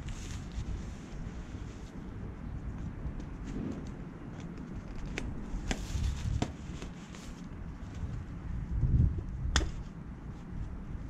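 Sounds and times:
tent fabric rustling: 0.0 - 2.0, 5.5 - 8.1.

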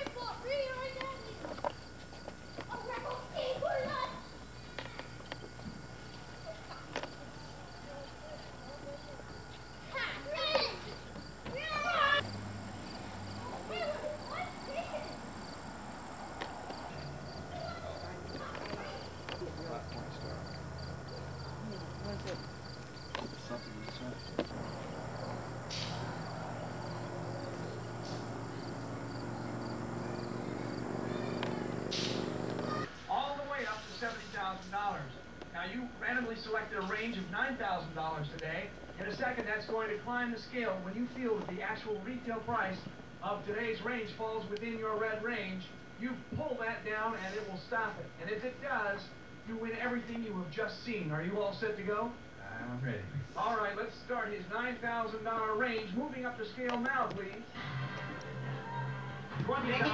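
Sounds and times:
insects chirping: 0.0 - 52.8
faint distant voices: 0.0 - 59.9
sharp click: 31.4 - 32.3.

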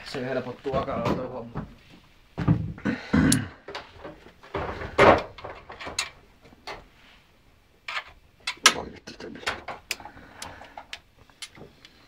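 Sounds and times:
metal clunks and rattles: 3.6 - 6.8.

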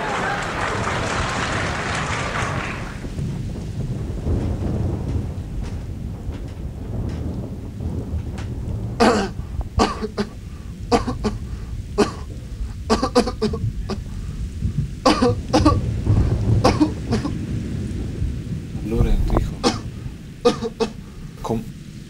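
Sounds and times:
steady low rumble: 2.7 - 22.0
man coughing: 9.0 - 14.1, 15.1 - 15.9, 16.6 - 17.4, 19.2 - 21.1.

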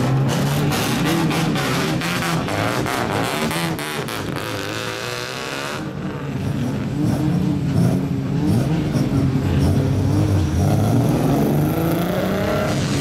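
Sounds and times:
car engines driving slowly: 0.0 - 13.0.

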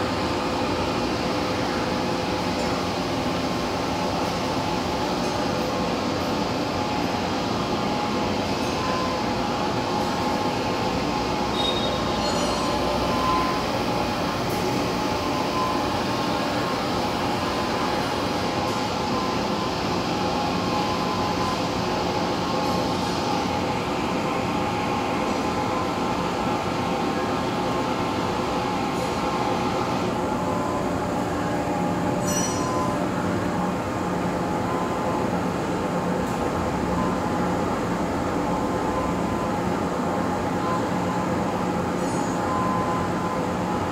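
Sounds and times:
faint high clinks: 32.2 - 32.9.

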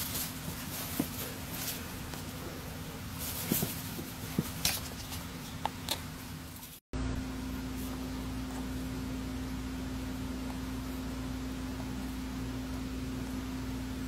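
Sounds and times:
beak clicks and feather rustles: 0.0 - 5.6
low hum: 5.1 - 14.0.

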